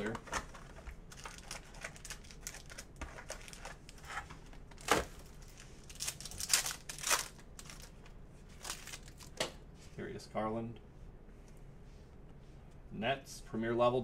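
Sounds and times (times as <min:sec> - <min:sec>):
foil wrapper tearing and crinkling: 0:00.5 - 0:04.2, 0:04.8 - 0:07.9, 0:08.6 - 0:09.4.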